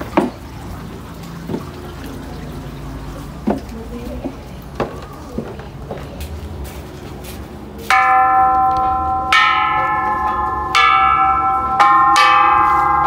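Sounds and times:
metal temple bells ringing: 7.9 - 13.0.

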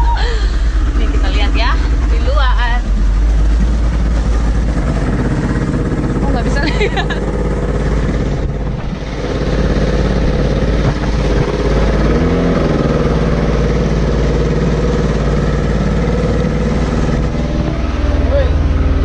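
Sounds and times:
motorboat engine running: 0.0 - 19.0.

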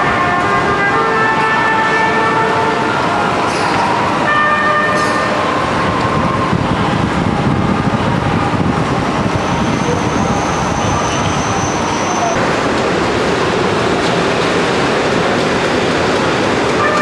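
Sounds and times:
traffic rumble: 0.0 - 17.0
trumpet playing held notes: 16.8 - 17.0.

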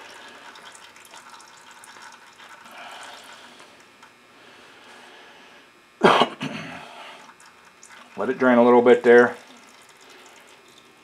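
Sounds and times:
oil dripping into a pan: 0.0 - 3.4, 7.3 - 8.4, 9.4 - 11.0.

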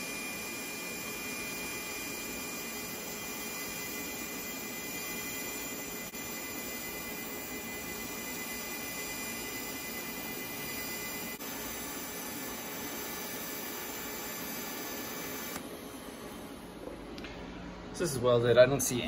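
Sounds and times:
faint high whine: 0.0 - 16.3
welding arc hissing: 11.3 - 15.6.

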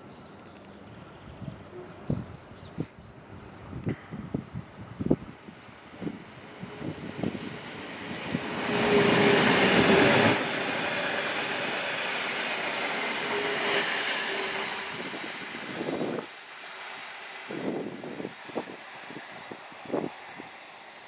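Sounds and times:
electric train passing: 4.9 - 21.0.

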